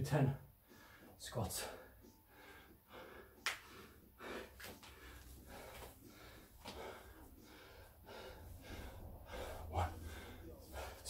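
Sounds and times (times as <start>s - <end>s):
man breathing hard: 0.6s - 11.0s.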